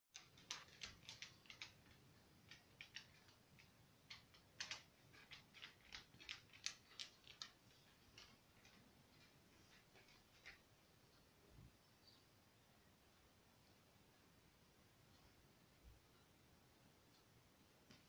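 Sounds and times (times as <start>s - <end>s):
dog claws clicking on wooden floor: 0.1s - 10.6s.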